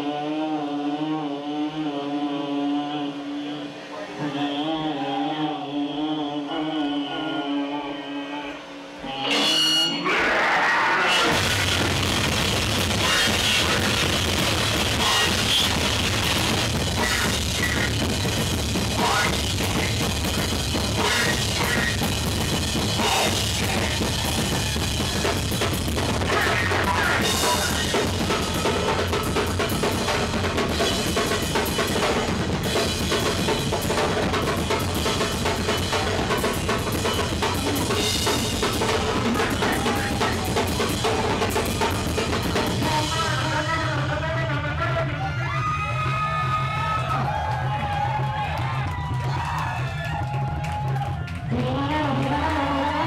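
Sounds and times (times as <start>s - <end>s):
distorted bass guitar: 9.0s - 49.4s
fast loud drum kit: 11.1s - 53.0s.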